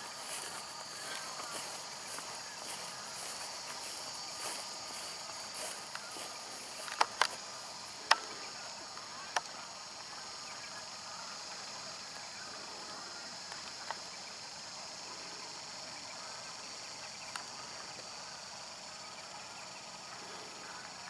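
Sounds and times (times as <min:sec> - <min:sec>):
high-pitched insect chorus: 0:00.0 - 0:21.0
sharp clicks: 0:06.8 - 0:07.4.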